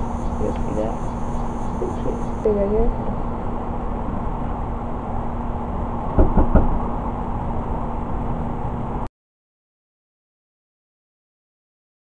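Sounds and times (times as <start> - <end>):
low background hum: 0.0 - 9.1.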